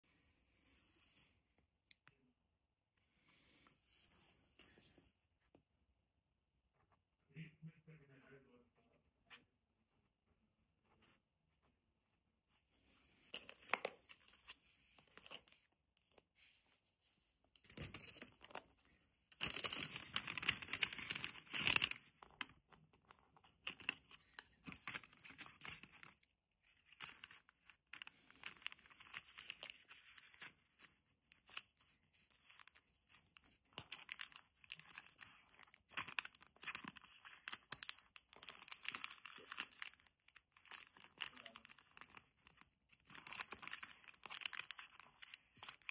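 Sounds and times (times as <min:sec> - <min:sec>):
paper rustling and crinkling: 0:12.5 - 0:16.3, 0:17.6 - 0:45.9.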